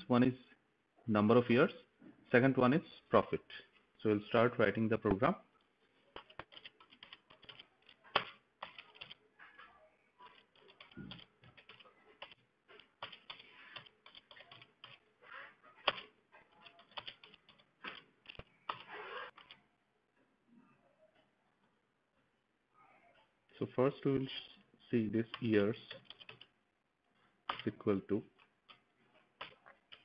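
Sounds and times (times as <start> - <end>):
keyboard typing: 6.0 - 19.6, 25.2 - 26.5, 27.5 - 30.0.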